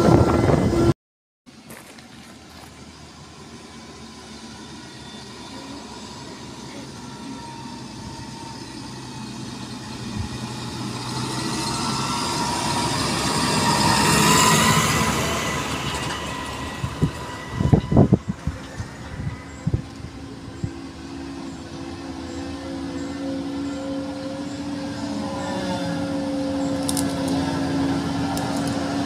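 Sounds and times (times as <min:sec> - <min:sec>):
tractor engine passing: 0:01.7 - 0:29.0.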